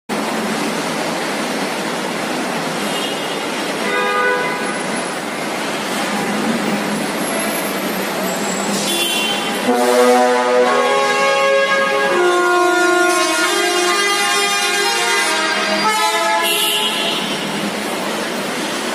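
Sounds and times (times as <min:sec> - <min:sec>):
passing vehicles hiss: 0:00.1 - 0:18.9
vehicle horns tooting: 0:02.8 - 0:05.0, 0:08.5 - 0:17.7.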